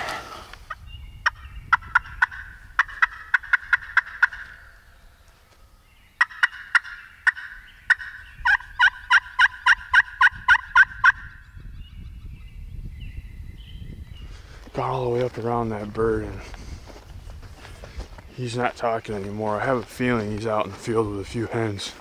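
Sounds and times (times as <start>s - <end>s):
turkey yelping: 1.2s - 4.8s, 6.2s - 11.4s.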